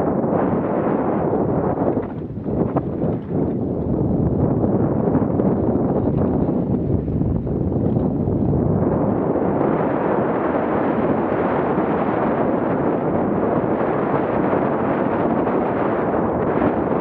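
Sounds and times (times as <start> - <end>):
wind buffeting microphone: 0.0 - 17.0
bike tyres rolling on dirt: 1.1 - 9.4.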